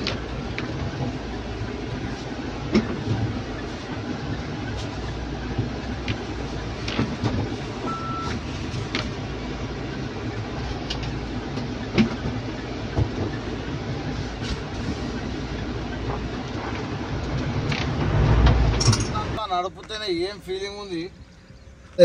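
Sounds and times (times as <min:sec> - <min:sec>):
vehicle rumbling over rough ground: 0:00.0 - 0:22.0
knocks and clunks: 0:02.0 - 0:03.7, 0:04.4 - 0:09.2, 0:10.7 - 0:20.0
short beep: 0:07.9 - 0:08.4.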